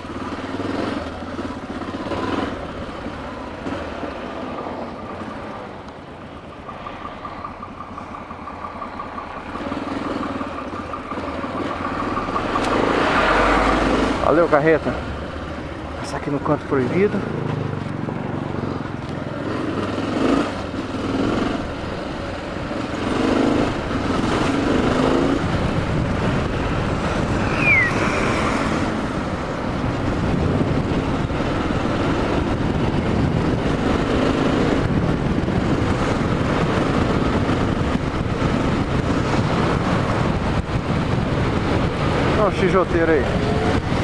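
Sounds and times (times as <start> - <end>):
motorcycle engine: 0.0 - 44.0
wind rush on microphone: 19.4 - 44.0
high falling squeak: 27.4 - 28.8.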